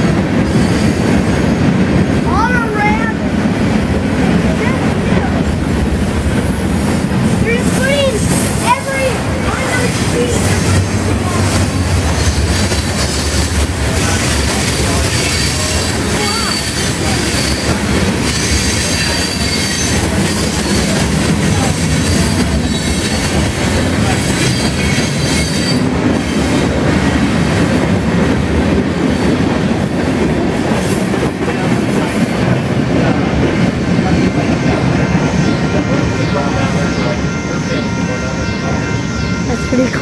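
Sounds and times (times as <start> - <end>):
freight train wheels rumbling on rails: 0.0 - 40.0
wheel squeal: 15.0 - 21.0, 24.3 - 26.4.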